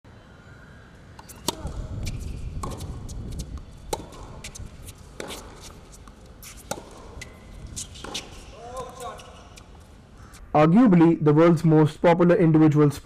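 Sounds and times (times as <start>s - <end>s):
racket hitting tennis ball: 1.2s - 9.7s
tennis ball bouncing: 1.2s - 9.9s.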